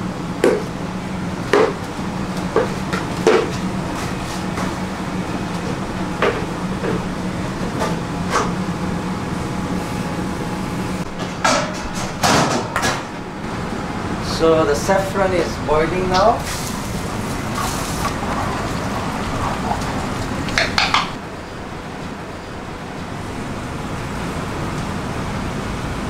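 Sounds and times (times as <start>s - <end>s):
steady low hum: 0.0s - 26.0s
cookware and utensils knocking: 20.4s - 21.2s.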